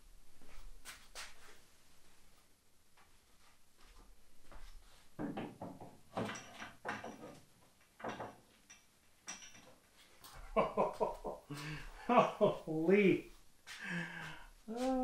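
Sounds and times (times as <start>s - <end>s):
hard parts knocking on workbench: 5.2s - 7.4s.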